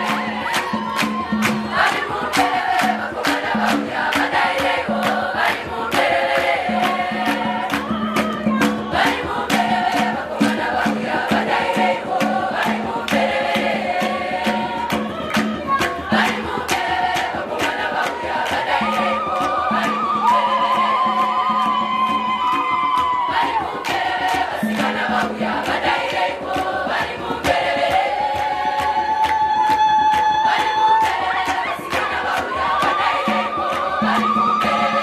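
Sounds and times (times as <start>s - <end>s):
girls' choir singing in harmony: 0.0s - 35.0s
sharp percussive strikes: 0.0s - 35.0s.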